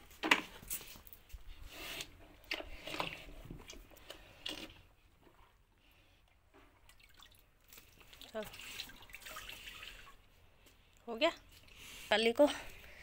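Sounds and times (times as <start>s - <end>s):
cow slurping water: 6.8s - 10.3s.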